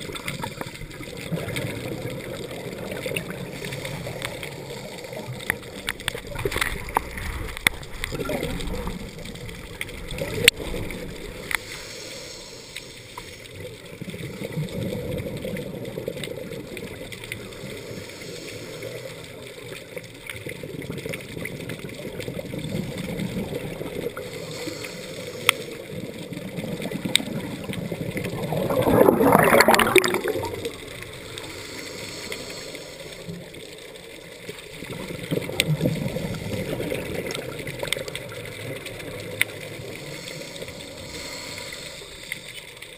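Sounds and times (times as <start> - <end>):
exhaled bubbles gurgling: 0.0 - 42.9
regulator inhale hiss: 11.4 - 13.8, 17.4 - 19.6, 24.2 - 26.0, 31.2 - 34.0, 39.7 - 42.9.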